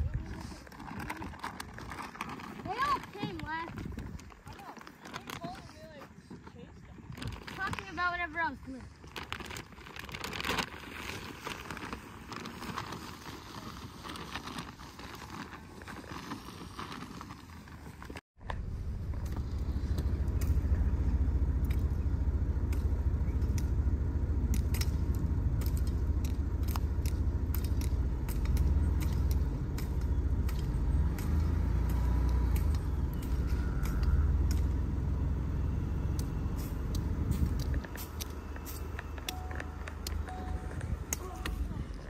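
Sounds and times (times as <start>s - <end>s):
vehicle engine rumbling: 18.0s - 42.0s.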